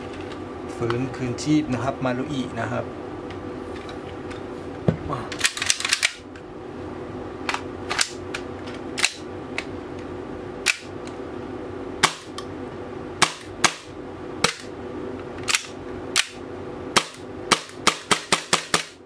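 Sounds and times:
airsoft pistol shots: 12.0s - 12.3s, 13.2s - 14.6s, 17.0s - 19.0s.

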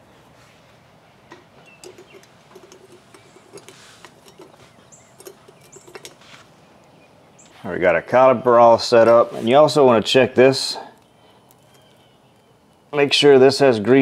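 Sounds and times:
light metallic clicks and ticks: 1.3s - 7.5s.

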